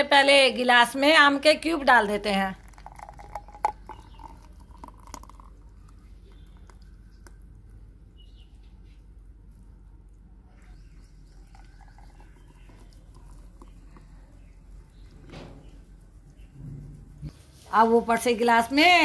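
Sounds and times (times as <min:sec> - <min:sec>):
thick liquid pouring into glass: 0:02.5 - 0:07.6, 0:10.7 - 0:14.6.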